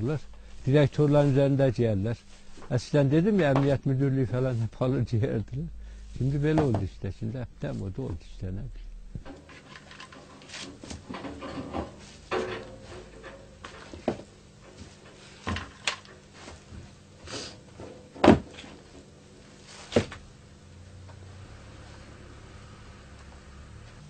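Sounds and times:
objects knocking and bumping: 6.4s - 7.0s, 9.2s - 17.0s, 17.7s - 19.1s.

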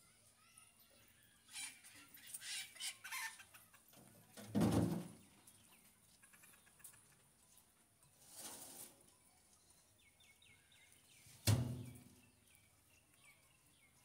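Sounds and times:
chickens clucking: 0.2s - 9.6s.

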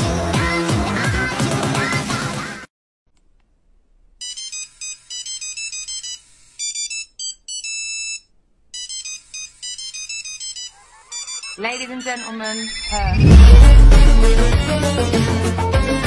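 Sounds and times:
electronic beeping melody: 8.8s - 14.6s.

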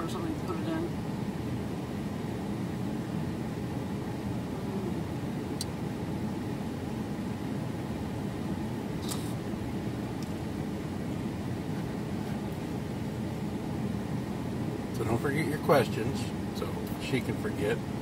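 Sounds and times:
engine idling inside van: 0.0s - 18.0s.

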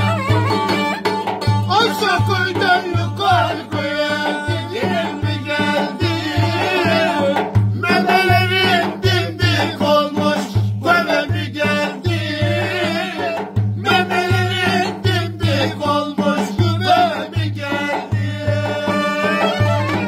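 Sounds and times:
strummed lute: 0.0s - 3.3s
drum beating steady rhythm: 0.0s - 20.0s
men singing folk tune: 1.6s - 20.0s.

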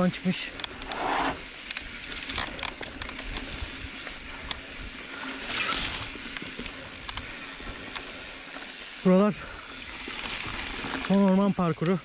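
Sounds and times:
bike tyres rumbling on dirt: 0.0s - 12.0s
bike rattles and knocks: 0.5s - 8.1s
short rushing hiss: 0.8s - 1.5s.

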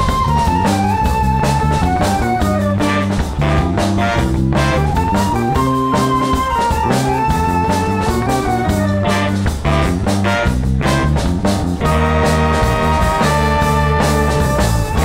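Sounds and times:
flute: 0.0s - 9.4s
live band instrumental: 0.0s - 15.0s
repeating bass line: 0.0s - 15.0s
saxophone and trumpet: 0.0s - 15.0s.

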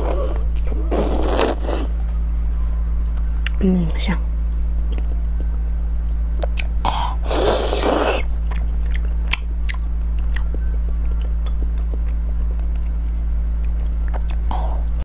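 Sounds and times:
low electrical hum: 0.0s - 15.0s
chewing with clicks and smacks: 6.4s - 6.8s, 7.8s - 15.0s
wet bite: 7.3s - 10.5s.

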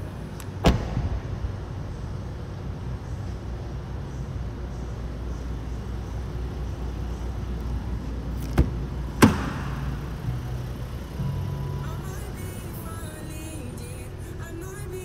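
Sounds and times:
low hum: 0.0s - 15.0s
car door handle and latch clicks: 8.4s - 9.6s.

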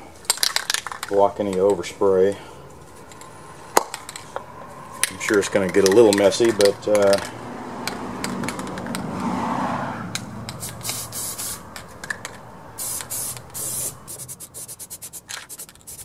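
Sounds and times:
handling noise: 2.7s - 9.4s
spray can hissing: 10.5s - 11.7s, 12.8s - 16.0s.

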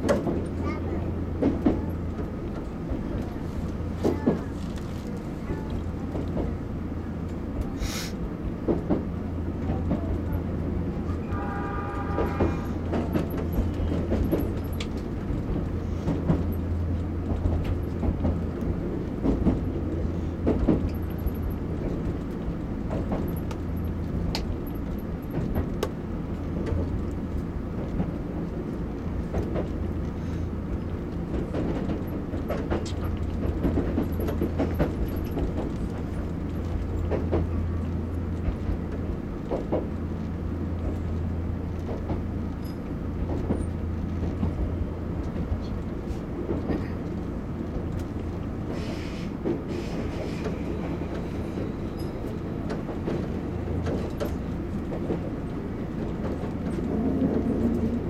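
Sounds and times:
train hum and rumble: 0.0s - 58.0s.

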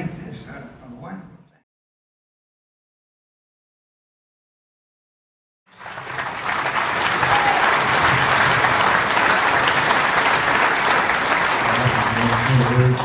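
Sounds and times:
large audience applauding: 5.7s - 13.0s.

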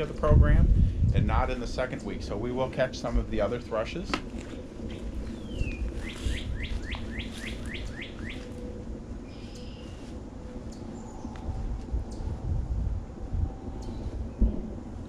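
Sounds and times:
songbird singing: 1.0s - 12.5s.

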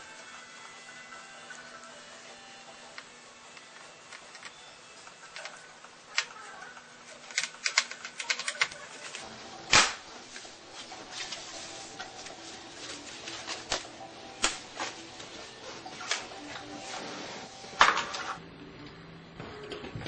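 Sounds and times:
clicks of plastic and metal parts: 7.3s - 9.2s.

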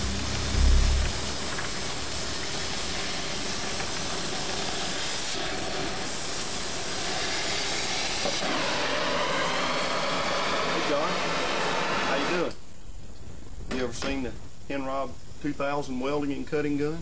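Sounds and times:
torch flame hissing: 0.0s - 12.5s.

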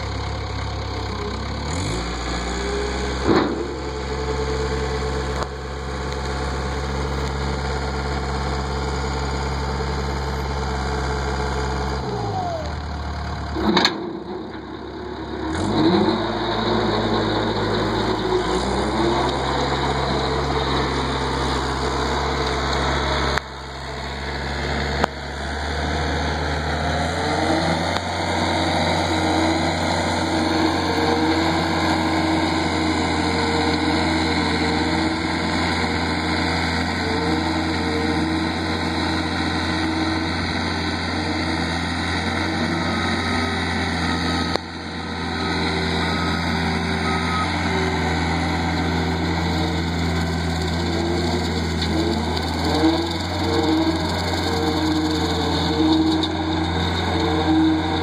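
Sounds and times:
diesel engine under load: 0.0s - 58.0s
brush cutter cutting grass: 47.0s - 58.0s.

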